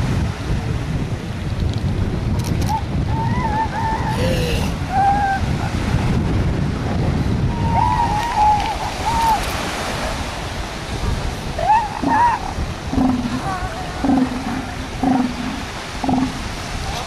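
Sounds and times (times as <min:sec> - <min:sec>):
wind buffeting microphone: 0:00.0 - 0:17.0
surf breaking on beach: 0:04.5 - 0:17.0
wavering high-pitched calls: 0:11.6 - 0:16.4.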